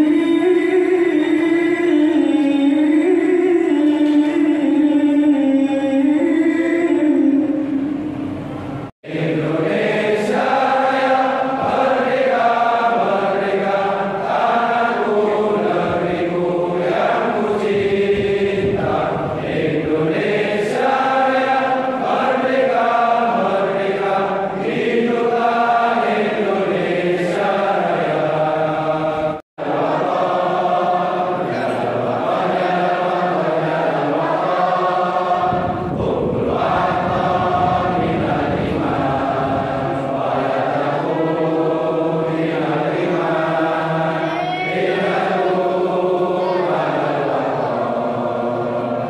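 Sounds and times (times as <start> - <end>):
men singing in unison: 0.0 - 7.8, 9.0 - 49.0.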